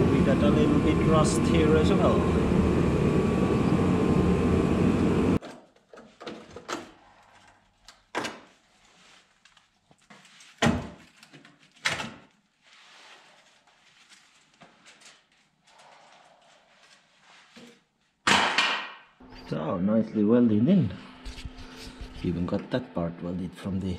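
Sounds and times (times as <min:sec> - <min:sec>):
loud steady noise: 0:00.0 - 0:05.4.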